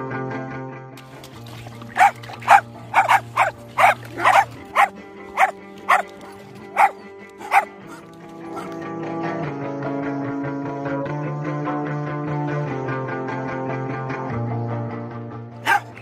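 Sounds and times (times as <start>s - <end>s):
soft background music: 1.0s - 10.4s
dog barking: 1.9s - 8.8s, 15.6s - 16.0s.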